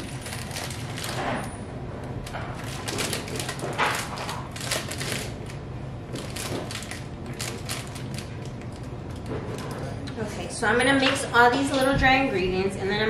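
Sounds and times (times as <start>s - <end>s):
spice bag crinkling: 6.2s - 9.7s.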